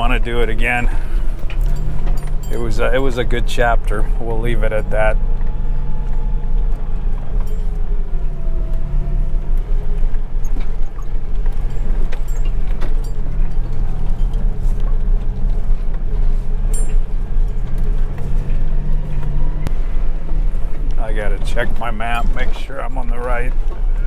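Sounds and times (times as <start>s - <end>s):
truck engine and road rumble: 0.0s - 24.0s
wavering whine: 3.9s - 13.5s.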